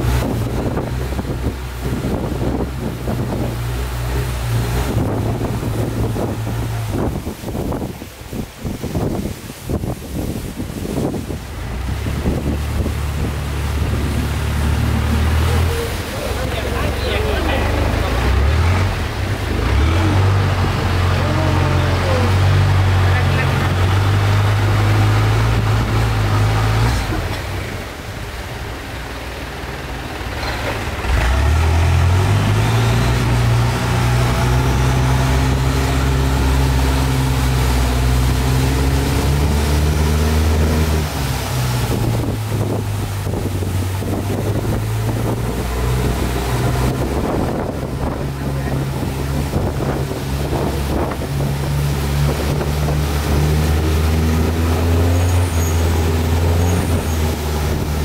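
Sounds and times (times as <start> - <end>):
motorboat engine running: 0.0 - 58.0
wind and water noise: 0.0 - 58.0.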